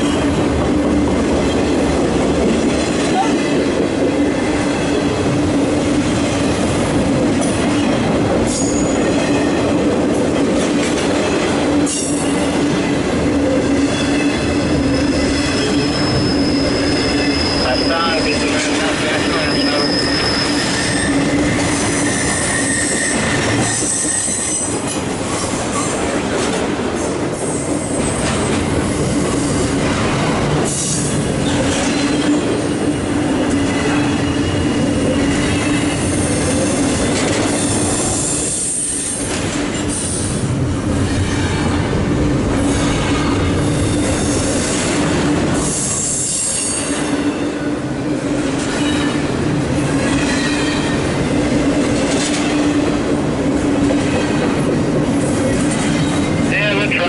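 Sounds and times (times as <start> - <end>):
train wheels rumbling on rails: 0.0 - 57.0
high-pitched wheel squeal: 14.9 - 18.5, 19.2 - 24.7.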